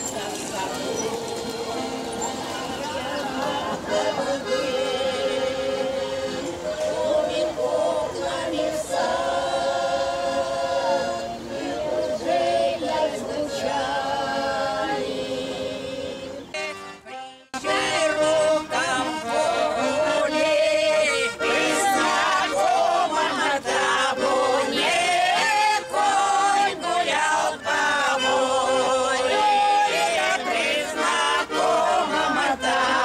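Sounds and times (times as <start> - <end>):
group singing in unison: 0.0 - 16.7, 17.6 - 33.0
button accordion: 0.0 - 33.0.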